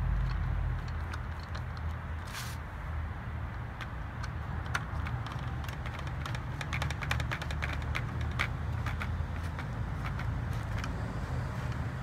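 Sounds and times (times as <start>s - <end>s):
steady low hum: 0.0s - 3.8s
short scrape: 2.2s - 2.6s
screwdriver clicking on plastic: 3.5s - 11.0s.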